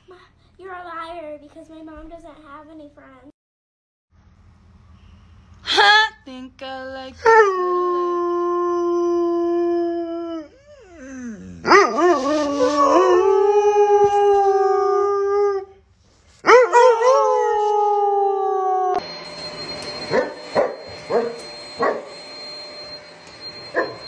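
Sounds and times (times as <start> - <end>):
dog howling: 7.3 - 15.7, 16.4 - 19.0
thin high whine: 18.9 - 24.0.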